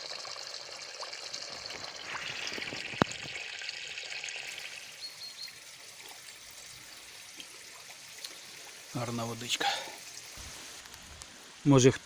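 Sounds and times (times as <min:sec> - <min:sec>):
water pouring onto stones: 0:00.0 - 0:11.9.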